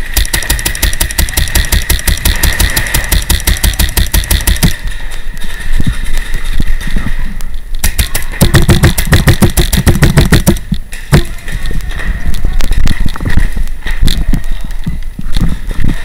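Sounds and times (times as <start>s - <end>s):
paintball markers firing: 0.0s - 5.0s, 7.8s - 11.4s.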